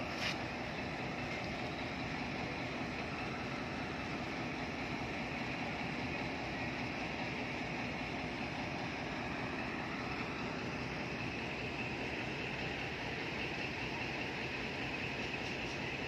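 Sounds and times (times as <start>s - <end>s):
diesel locomotive engine rumble: 0.0s - 16.0s.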